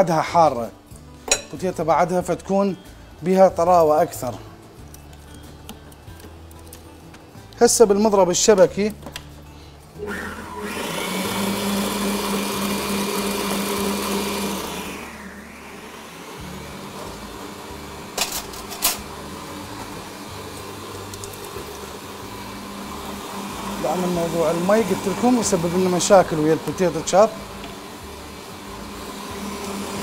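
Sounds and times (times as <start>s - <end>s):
electric mixer whisking: 10.0s - 30.0s.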